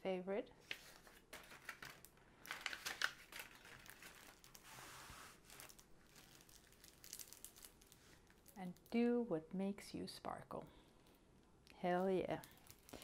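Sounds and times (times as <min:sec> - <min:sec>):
plastic film crinkling: 0:00.8 - 0:09.0, 0:12.3 - 0:13.0
soft rustle: 0:03.3 - 0:09.1.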